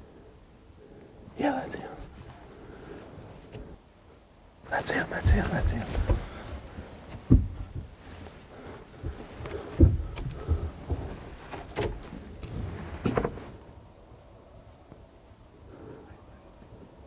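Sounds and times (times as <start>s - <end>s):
knocks and thumps in wooden blind: 4.9s - 13.5s.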